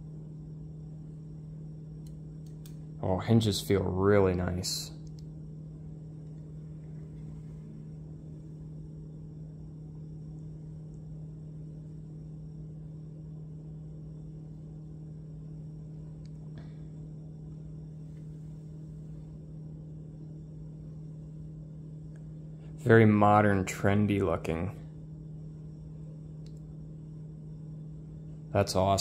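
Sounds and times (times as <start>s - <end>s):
low electrical hum: 0.0s - 29.0s
faint clicks: 2.0s - 2.8s.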